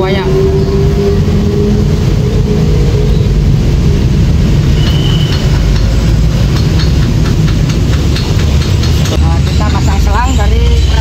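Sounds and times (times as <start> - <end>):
high whistle: 4.7 - 5.5.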